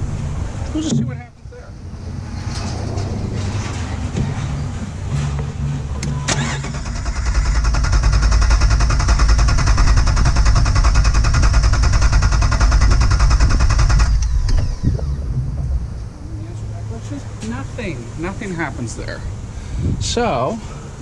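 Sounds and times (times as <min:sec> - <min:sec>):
car engine cranking: 0:05.3 - 0:16.4.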